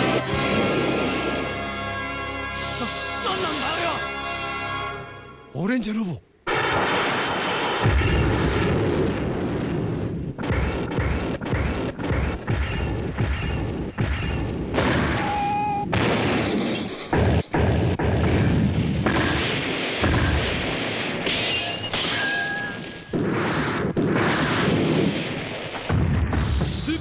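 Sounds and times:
booms and crashes: 0.0s - 1.6s, 6.5s - 27.0s
background music: 0.0s - 6.4s.

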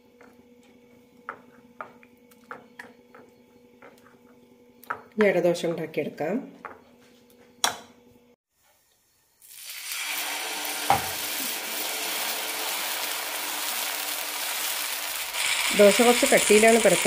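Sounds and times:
batter sizzling on hot pan: 9.3s - 17.0s.

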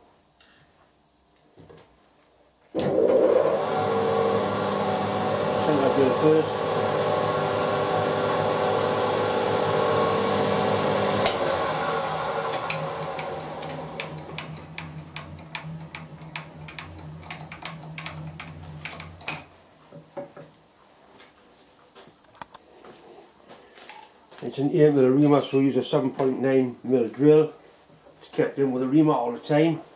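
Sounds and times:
milling machine spindle running: 3.5s - 19.5s
machine stopping with sharp click: 12.5s - 19.5s.

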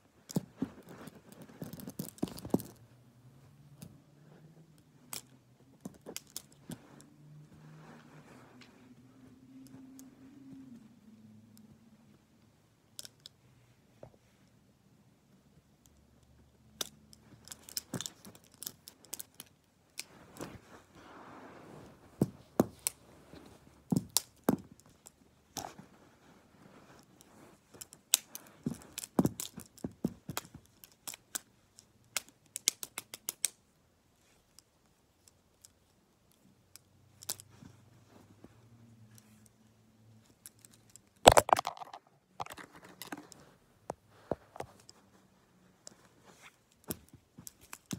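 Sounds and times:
soft rustling: 0.0s - 3.5s, 41.7s - 47.9s
plastic pens clicking together: 5.1s - 6.8s, 13.0s - 13.3s, 16.8s - 20.1s, 27.7s - 33.6s, 34.5s - 37.6s, 46.7s - 47.9s
pens clattering: 40.8s - 43.4s.

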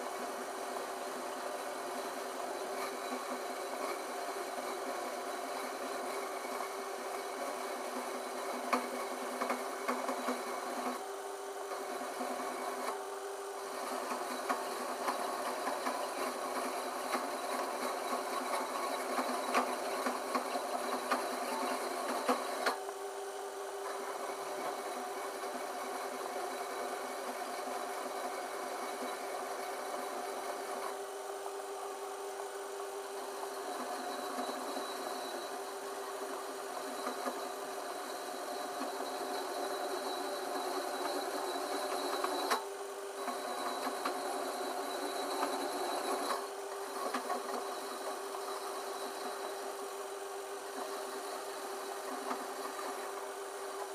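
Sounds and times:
metal lathe running: 11.7s - 13.0s, 13.6s - 22.8s, 23.9s - 53.9s.

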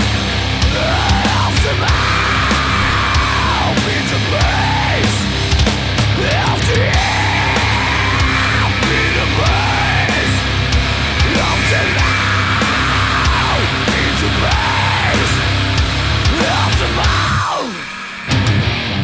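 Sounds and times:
heavy metal music: 0.0s - 19.0s.

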